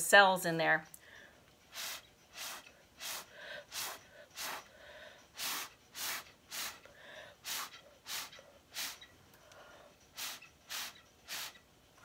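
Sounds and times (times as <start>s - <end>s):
soft breathing: 1.0s - 10.2s
puffs blown through a straw: 1.7s - 4.7s, 5.3s - 9.1s, 10.1s - 11.6s.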